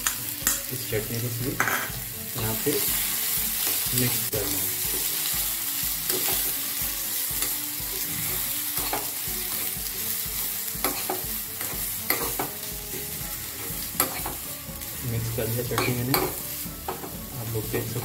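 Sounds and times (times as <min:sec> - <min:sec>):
light sizzle: 0:00.0 - 0:18.0
metal spoon scraping a pan: 0:07.4 - 0:09.8, 0:10.8 - 0:12.6, 0:13.5 - 0:14.4.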